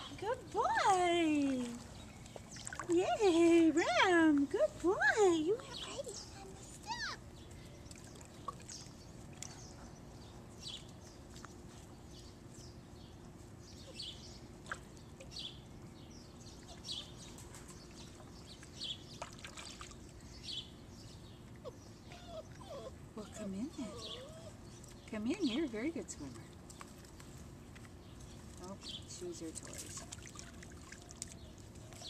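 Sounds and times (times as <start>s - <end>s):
small splashes of water: 1.4s - 3.0s, 17.5s - 20.2s, 29.5s - 32.0s.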